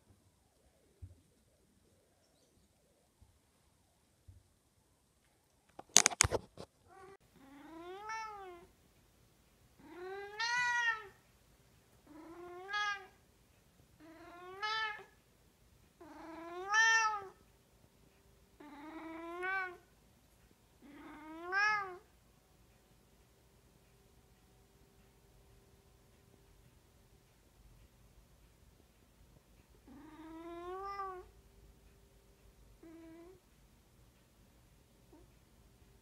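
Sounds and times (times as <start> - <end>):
cat meowing: 6.9 - 8.7, 9.8 - 11.2, 12.1 - 13.2, 14.0 - 15.2, 16.0 - 17.4, 18.6 - 19.8, 20.8 - 22.1, 29.9 - 31.3.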